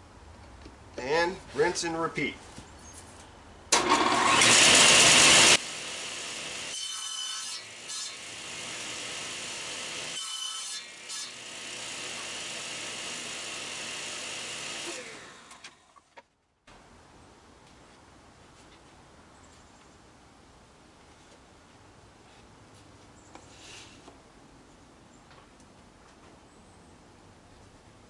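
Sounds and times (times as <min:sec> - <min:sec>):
table saw winding down: 0:03.7 - 0:16.0
table saw cutting wood: 0:03.8 - 0:15.8.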